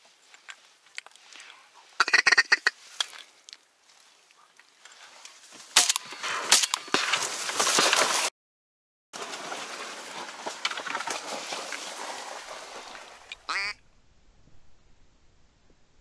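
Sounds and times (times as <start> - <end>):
reeds brushing and crackling: 0.0 - 8.3, 9.2 - 13.8
duck quack: 2.0 - 2.8, 13.5 - 13.8.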